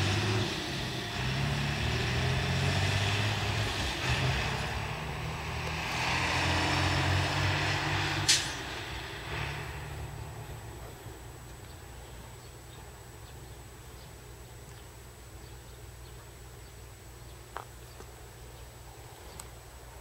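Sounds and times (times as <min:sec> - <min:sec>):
freight train rolling: 0:00.0 - 0:12.8
diesel truck rumble: 0:00.0 - 0:15.4
sharp hiss of air: 0:07.8 - 0:10.4.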